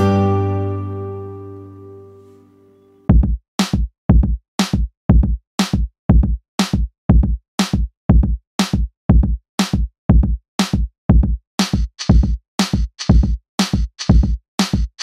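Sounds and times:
electronic music drum-machine beat: 3.1 - 15.0.

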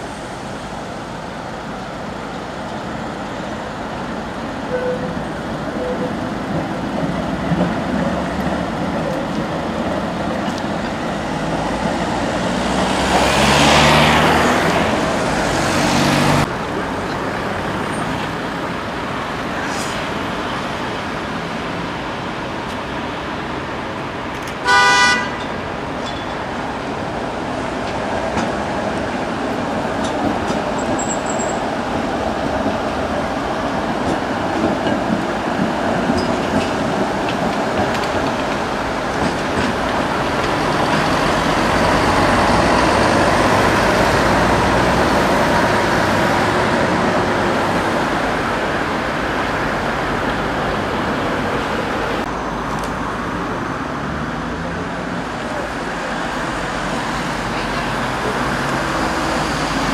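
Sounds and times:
street traffic: 0.0 - 59.9
tram passing: 0.0 - 59.9
vehicle horn toot: 4.7 - 5.1, 24.6 - 25.5.

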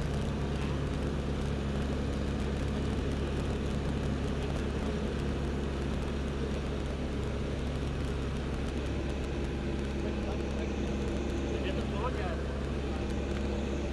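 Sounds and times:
constant hiss: 0.0 - 13.9
propeller engine drone: 0.0 - 13.9.

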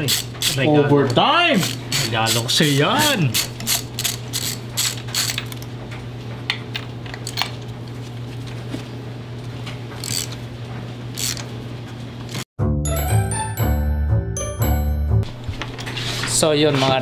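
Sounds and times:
ratchet wrench clicking: 0.1 - 0.6, 1.6 - 5.5, 10.0 - 10.3, 11.2 - 11.4.

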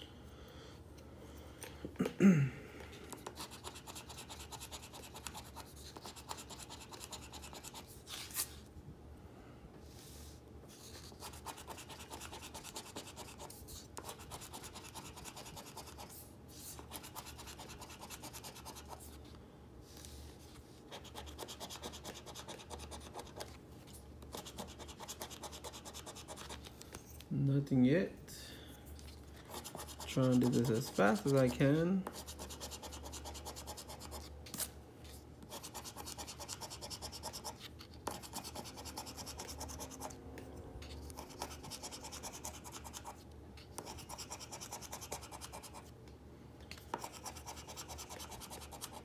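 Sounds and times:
scraping scratch card coating: 3.2 - 8.6, 10.7 - 19.2, 20.8 - 23.6, 29.0 - 40.2.

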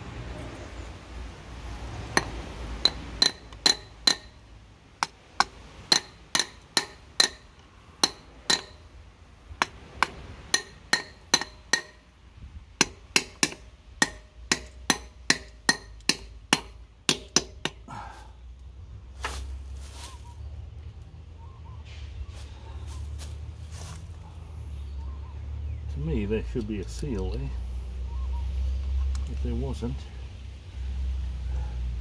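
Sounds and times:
ratchet wrench clicking: 2.2 - 4.3.

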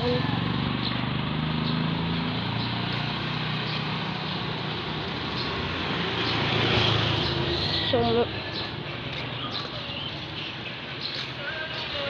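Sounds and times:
small motorcycle engine running: 0.0 - 8.3
wind and road noise: 0.0 - 12.0.

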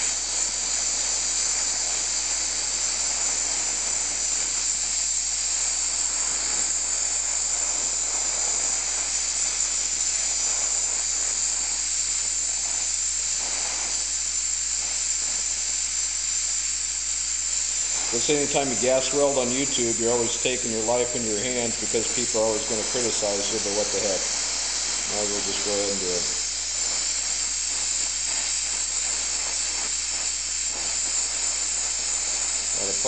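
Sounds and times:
welding torch flame hissing: 0.0 - 33.0.

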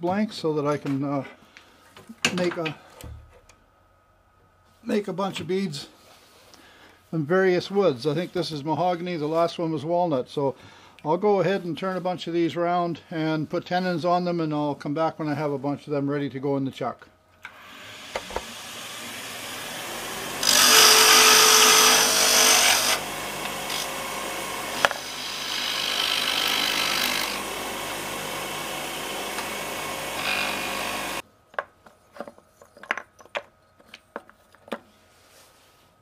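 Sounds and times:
turning tool cutting wood: 17.5 - 31.2
wood lathe running: 17.5 - 31.2.

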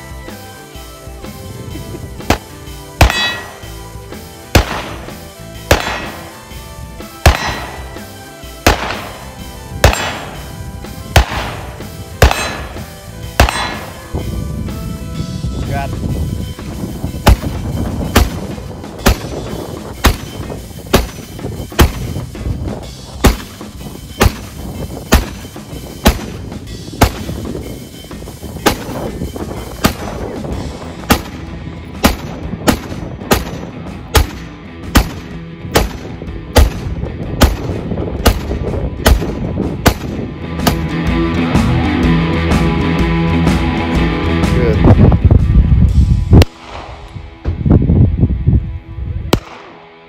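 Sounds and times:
background music: 0.0 - 50.0
rifle shots: 2.2 - 3.8, 4.5 - 6.5, 7.1 - 14.1, 17.2 - 19.4, 20.0 - 22.1, 23.2 - 23.6, 24.2 - 26.4, 27.0 - 27.4, 28.6 - 29.0, 29.8 - 30.2, 31.0 - 31.4, 32.0 - 40.9, 46.4 - 47.1, 49.3 - 49.8.

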